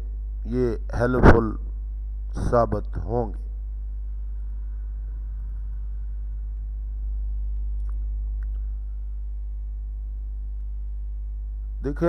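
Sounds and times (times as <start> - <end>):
low electrical hum: 0.0 - 12.0
faint ticks: 7.5 - 8.7.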